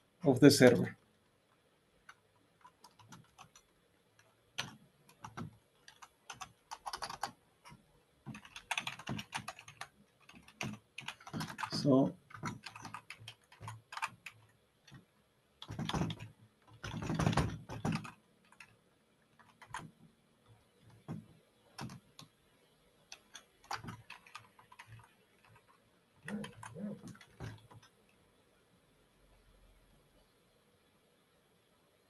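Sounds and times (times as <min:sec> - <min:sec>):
computer keyboard typing: 0:02.0 - 0:18.8, 0:19.4 - 0:20.0, 0:20.9 - 0:22.4, 0:23.1 - 0:28.0.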